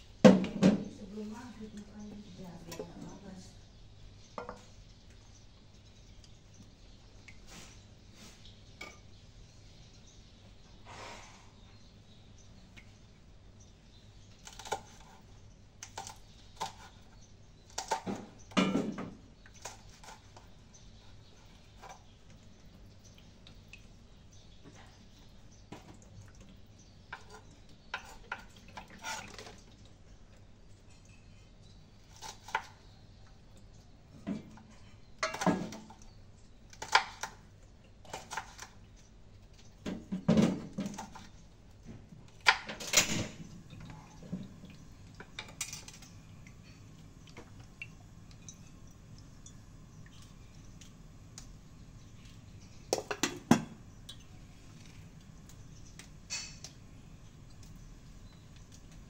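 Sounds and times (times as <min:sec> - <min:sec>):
dishes and cutlery clinking: 0:42.6 - 0:44.5, 0:56.2 - 0:56.8.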